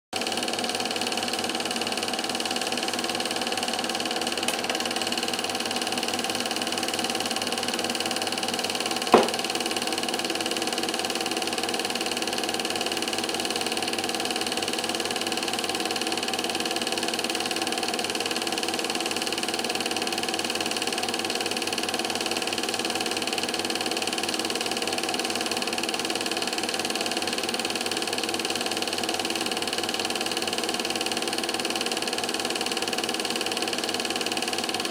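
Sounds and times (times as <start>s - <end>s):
film projector whirring: 0.2s - 34.9s
sharp click: 4.4s - 4.9s.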